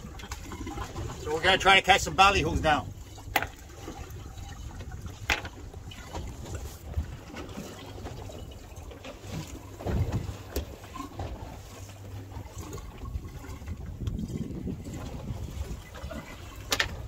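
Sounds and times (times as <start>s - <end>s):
water sloshing against boat hull: 0.0s - 17.0s
wind noise on microphone: 2.3s - 7.6s, 12.5s - 17.0s.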